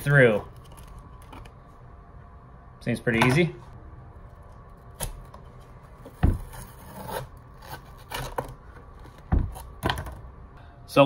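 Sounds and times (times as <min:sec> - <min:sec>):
tool scraping and rasping: 0:06.4 - 0:08.5.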